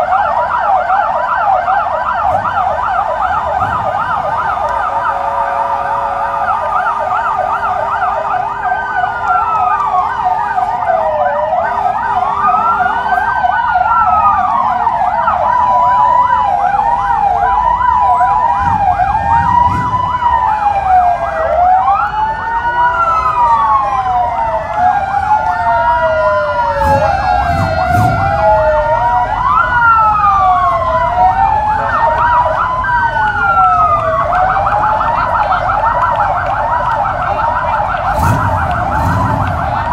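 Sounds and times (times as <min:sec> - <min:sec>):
emergency vehicle sirens: 0:00.0 - 0:39.9
low engine rumbles: 0:16.1 - 0:22.3, 0:23.2 - 0:39.9.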